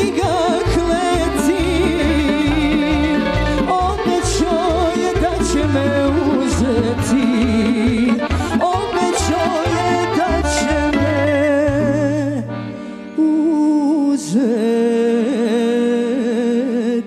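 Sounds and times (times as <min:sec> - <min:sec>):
woman singing with vibrato: 0:00.0 - 0:12.6, 0:13.2 - 0:17.0
double bass: 0:00.0 - 0:13.2
violins: 0:00.0 - 0:13.3
accordion: 0:00.0 - 0:17.0.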